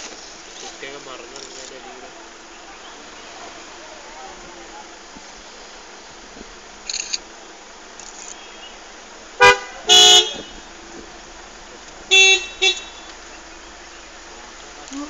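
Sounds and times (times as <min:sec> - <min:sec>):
background hiss: 0:00.0 - 0:15.0
vehicle horn honking: 0:09.4 - 0:10.8, 0:12.1 - 0:13.2.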